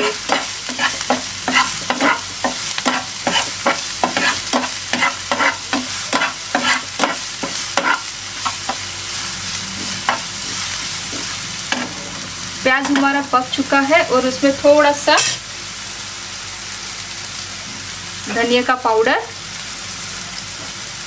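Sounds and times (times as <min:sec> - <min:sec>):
spatula scraping a pan: 0:00.0 - 0:12.2, 0:15.1 - 0:15.4
onions sizzling in oil: 0:00.0 - 0:21.0.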